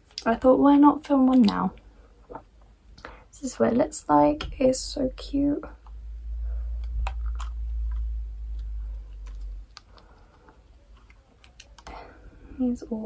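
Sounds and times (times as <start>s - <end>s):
low rumble: 4.3s - 10.0s.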